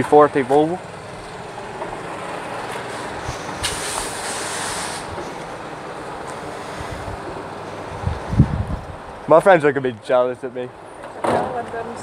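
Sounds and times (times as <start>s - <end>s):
bright hiss: 2.9s - 5.3s
wind rushing over microphone: 6.7s - 9.3s.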